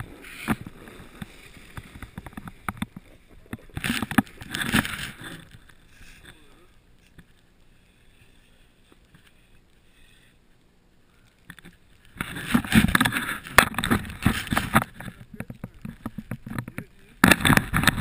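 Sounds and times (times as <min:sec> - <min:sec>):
sliding over packed snow: 0:00.0 - 0:06.8.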